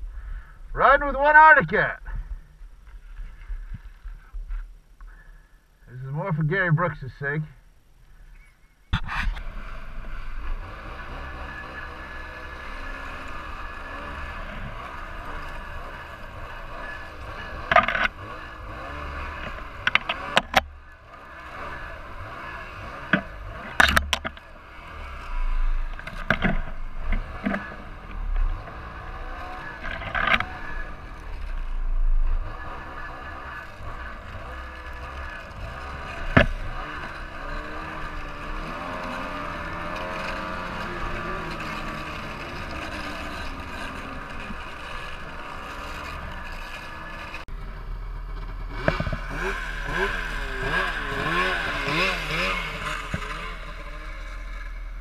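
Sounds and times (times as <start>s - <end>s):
snowmobile engine running: 9.0s - 55.0s
branches striking snowmobile: 22.6s - 24.5s, 25.1s - 28.6s, 34.6s - 47.3s, 48.7s - 54.8s.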